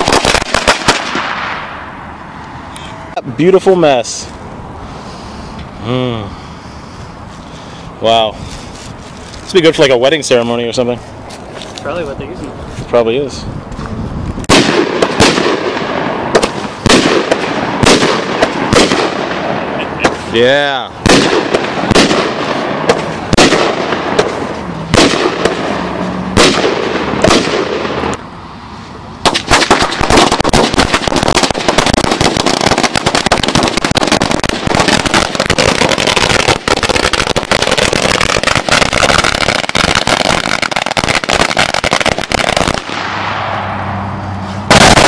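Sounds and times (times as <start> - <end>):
firecrackers crackling rapidly: 0.0 - 1.9, 7.0 - 12.4, 14.3 - 28.2, 29.2 - 43.4, 44.6 - 45.0
loud firecracker bangs: 0.0 - 2.0, 14.4 - 28.2, 29.2 - 43.8, 44.6 - 45.0.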